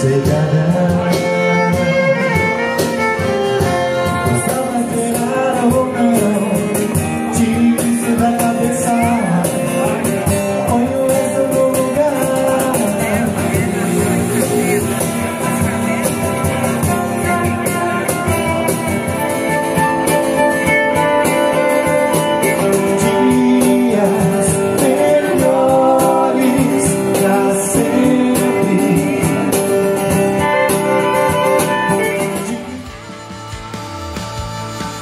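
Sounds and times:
cajon beat: 0.0s - 35.0s
strummed acoustic guitar: 0.0s - 35.0s.

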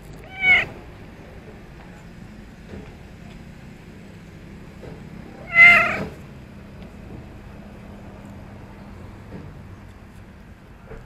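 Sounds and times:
cat meowing: 0.2s - 0.8s, 5.4s - 6.2s.

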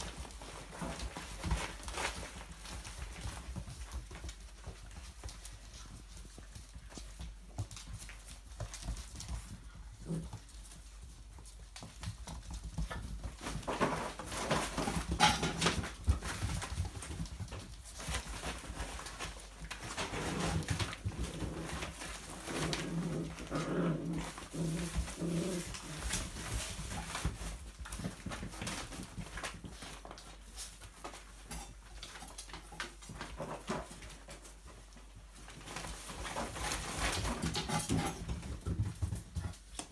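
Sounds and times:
puppies growling: 0.0s - 27.3s
plastic bag rustling: 0.0s - 39.7s
claws scrabbling on wooden floor: 0.0s - 39.9s.

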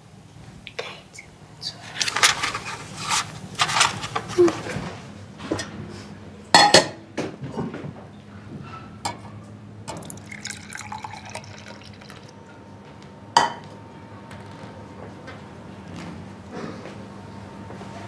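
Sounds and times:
milk pouring into a glass: 10.0s - 12.4s.

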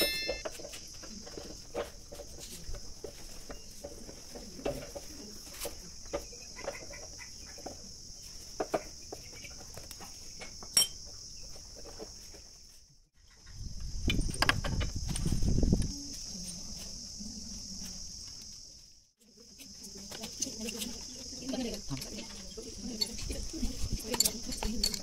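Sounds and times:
crickets trilling: 0.0s - 25.0s
metal parts knocking and clicking: 22.9s - 25.0s.

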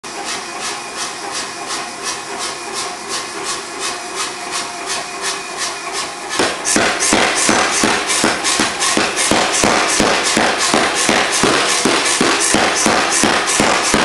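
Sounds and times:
power hammer striking steel: 1.4s - 14.0s
power hammer hissing pulses: 5.2s - 14.0s.

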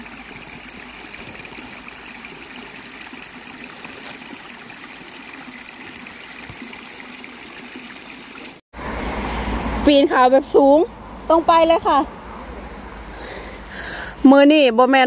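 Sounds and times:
running water rushing: 0.0s - 8.6s.

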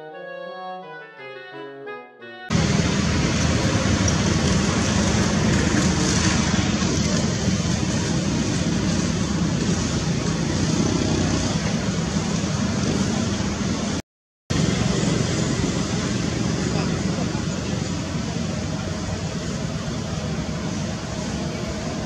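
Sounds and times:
loud rushing outdoor noise: 2.5s - 22.0s.

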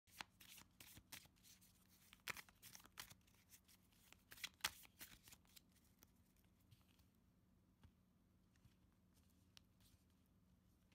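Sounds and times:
cards shuffled by hand: 0.1s - 7.1s.

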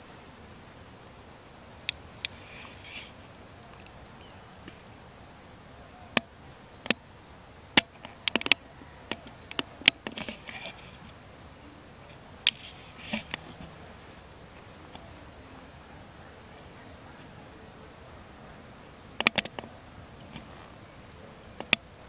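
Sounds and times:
sharp clicks and taps: 19.2s - 19.7s, 21.6s - 21.9s.

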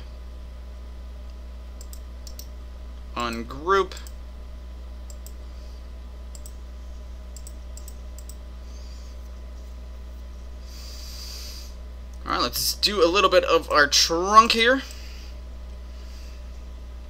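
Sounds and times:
low electrical hum: 0.0s - 17.0s
faint computer mouse clicks: 6.3s - 6.6s, 7.4s - 8.4s.

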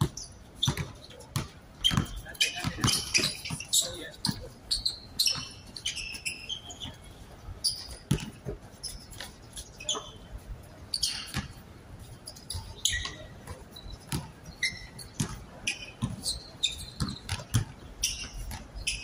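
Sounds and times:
sneaker squeaks: 0.0s - 19.0s
basketball thudding on court: 0.7s - 3.1s.

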